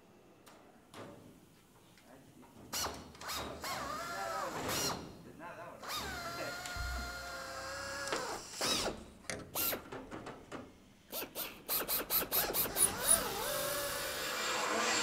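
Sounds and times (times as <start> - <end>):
pneumatic drill whining: 5.8 - 9.9, 11.1 - 15.0.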